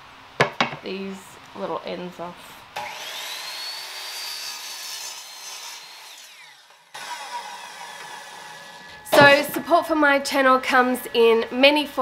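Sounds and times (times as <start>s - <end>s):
saw cutting wood: 2.8s - 9.7s.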